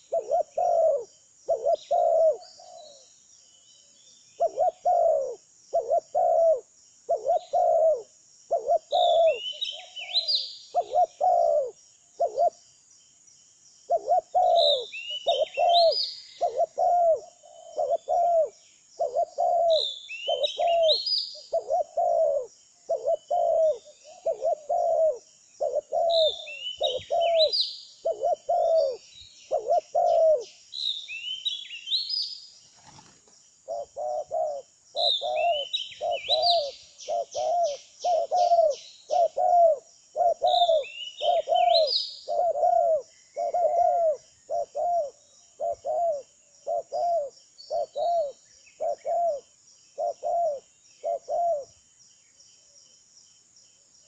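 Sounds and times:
dove cooing: 0:00.0 - 0:03.1, 0:04.4 - 0:12.6, 0:13.9 - 0:30.6, 0:33.7 - 0:51.7
high bird chirping: 0:13.9 - 0:33.1, 0:33.7 - 0:39.6, 0:40.2 - 0:45.0.

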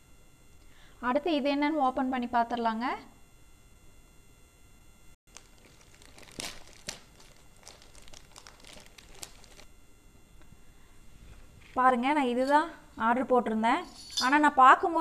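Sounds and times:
plastic bag crinkling and ripping: 0:05.3 - 0:09.7.

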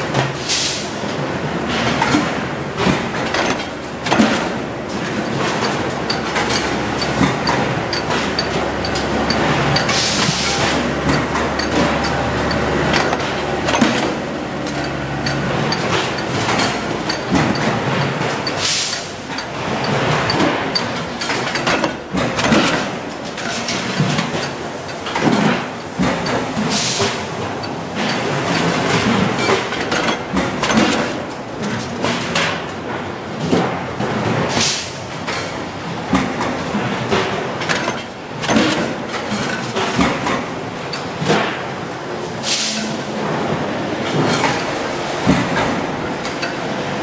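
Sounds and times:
press machinery humming: 0:00.0 - 0:47.0
steady factory noise: 0:00.0 - 0:47.0
sharp metal clanks: 0:03.3 - 0:31.5.

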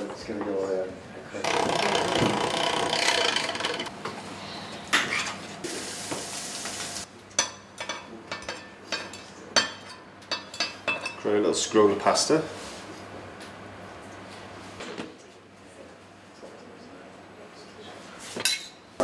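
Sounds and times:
utensils clattering: 0:01.4 - 0:03.9.

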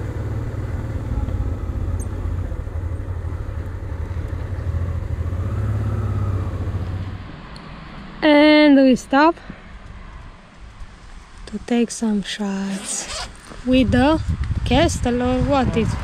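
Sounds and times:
motorcycle engine running: 0:00.0 - 0:07.2
wind and road noise: 0:00.0 - 0:16.0.

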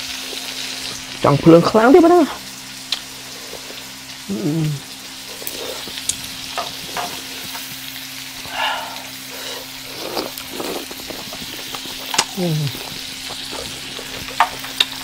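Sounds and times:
shrimp and vegetables sizzling: 0:00.0 - 0:15.0.

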